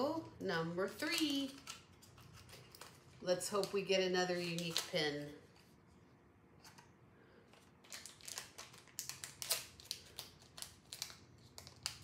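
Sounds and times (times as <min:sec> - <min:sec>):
foil packet tearing and crinkling: 0:04.3 - 0:05.0, 0:07.7 - 0:12.0.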